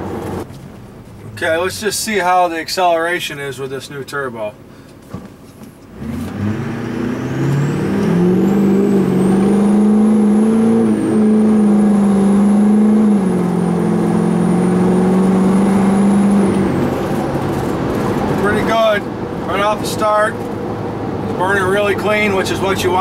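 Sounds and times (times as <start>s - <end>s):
diesel engine accelerating: 5.9s - 23.0s.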